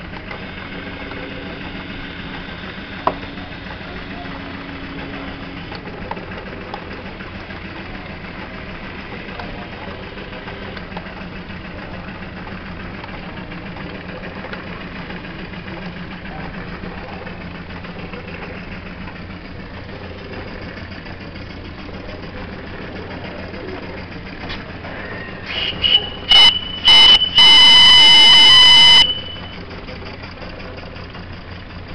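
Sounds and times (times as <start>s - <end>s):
toy steam engine humming: 0.0s - 31.9s
steam whistle toots: 25.1s - 29.6s.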